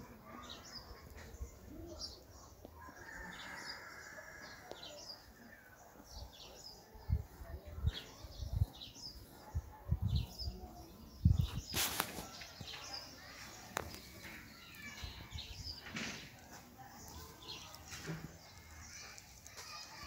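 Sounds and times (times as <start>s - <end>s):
small birds chirping: 0.0s - 20.0s
short loud rustle: 11.4s - 12.4s.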